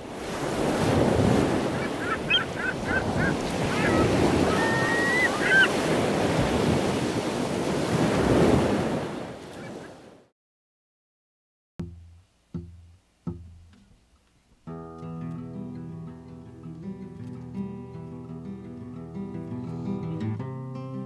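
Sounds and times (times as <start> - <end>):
waves washing on shore: 0.0 - 10.3.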